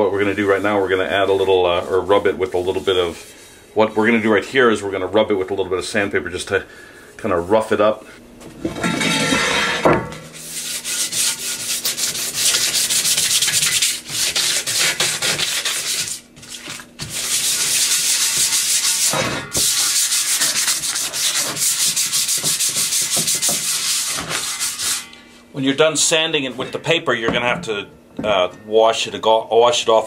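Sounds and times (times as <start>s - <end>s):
sandpaper scratching on metal: 10.4s - 25.1s.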